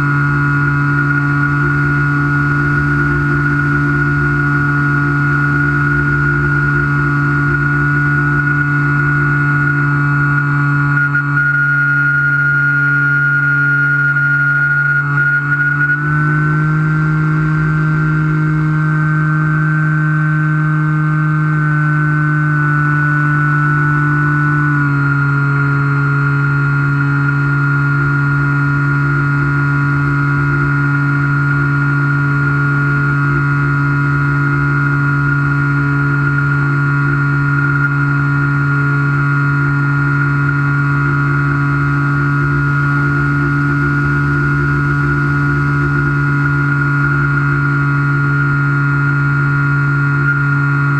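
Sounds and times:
low wind rumble: 0.0 - 10.9.

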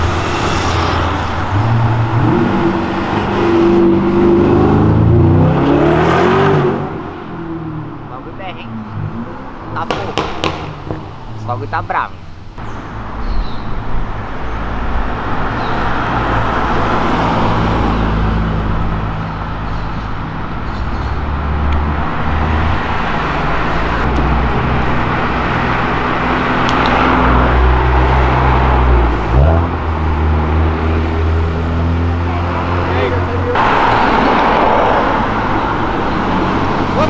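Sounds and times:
engine revving: 0.0 - 7.3
cars driving past: 0.0 - 37.0.

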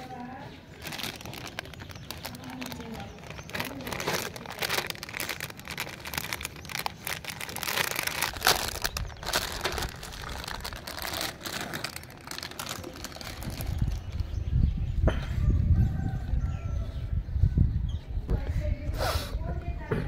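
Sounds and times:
plastic bag crinkling: 0.7 - 14.4.

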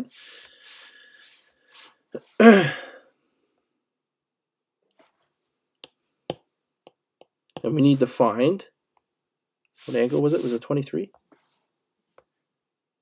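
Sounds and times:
man grunting: 2.4 - 3.0
man exhaling: 2.4 - 3.1.

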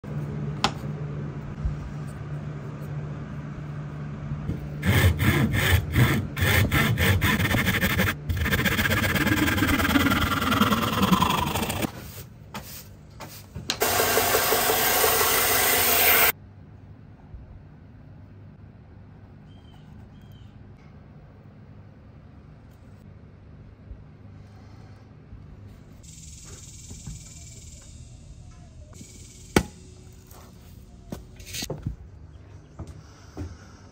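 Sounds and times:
hand saw cutting wood: 4.8 - 11.9
low steady hum: 16.3 - 33.9.

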